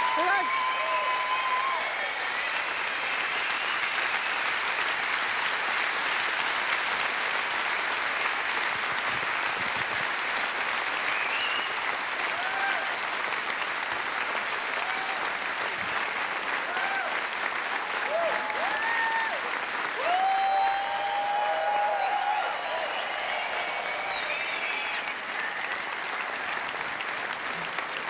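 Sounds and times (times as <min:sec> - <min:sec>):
calls from crowd: 0:00.0 - 0:04.3, 0:12.2 - 0:13.1, 0:16.4 - 0:27.8
audience applauding: 0:00.0 - 0:28.0.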